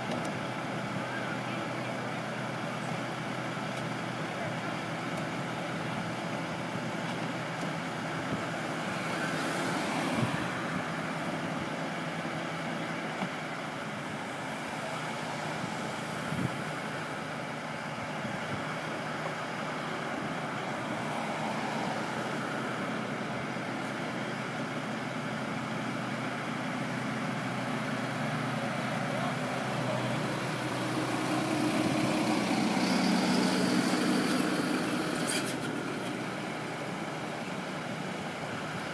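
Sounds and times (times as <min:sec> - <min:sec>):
road traffic noise: 0:00.0 - 0:38.9
truck engine running: 0:00.0 - 0:38.9
truck passing close by: 0:19.8 - 0:38.9.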